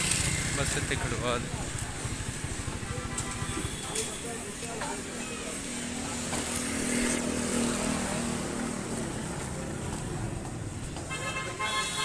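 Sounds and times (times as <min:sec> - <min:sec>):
vehicle engines running: 0:00.0 - 0:11.0
vehicle horn: 0:02.7 - 0:04.5, 0:11.1 - 0:12.0.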